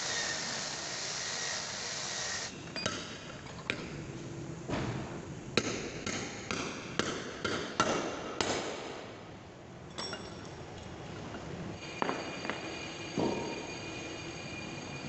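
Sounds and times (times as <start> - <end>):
sharp metal clanks ringing: 9.9 - 10.6, 11.8 - 15.0.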